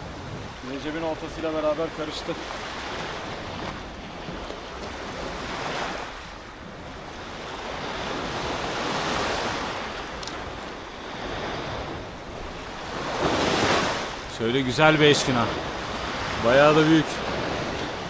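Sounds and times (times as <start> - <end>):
wind noise on microphone: 0.0 - 1.2, 15.2 - 18.0
sea waves washing onto shore: 0.0 - 18.0.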